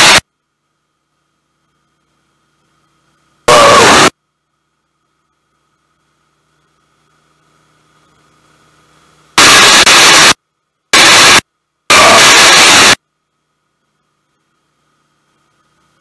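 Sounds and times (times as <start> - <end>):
harsh clipped intercom hiss: 0.0 - 0.2, 1.2 - 4.2, 5.0 - 13.0.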